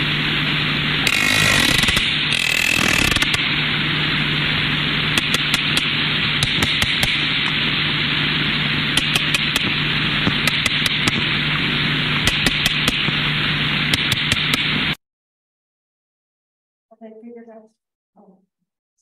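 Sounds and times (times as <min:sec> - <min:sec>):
steady hiss with low hum: 0:00.0 - 0:15.0.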